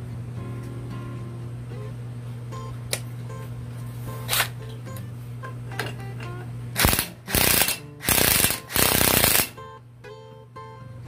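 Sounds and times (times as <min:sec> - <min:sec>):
impact wrench hammering: 0:06.8 - 0:09.6.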